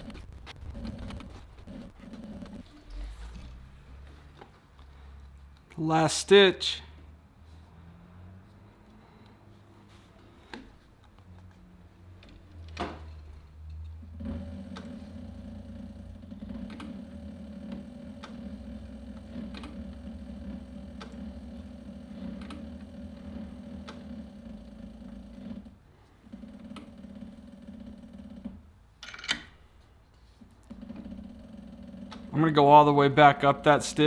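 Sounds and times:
sewing machine motor humming: 0:00.0 - 0:03.7, 0:13.9 - 0:28.7, 0:30.5 - 0:32.6.

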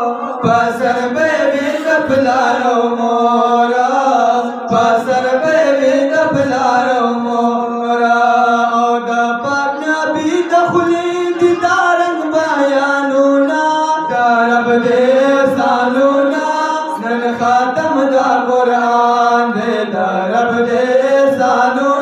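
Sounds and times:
men singing unaccompanied: 0:00.0 - 0:22.0.

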